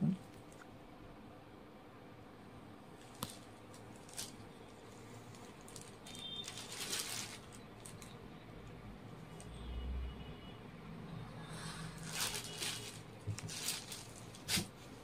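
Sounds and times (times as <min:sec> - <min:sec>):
fabric rustle: 0:03.0 - 0:08.2, 0:11.9 - 0:15.0.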